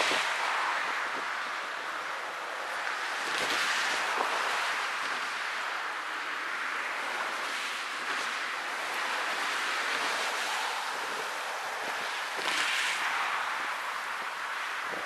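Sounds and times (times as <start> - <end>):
road traffic tyre noise: 0.0 - 15.0.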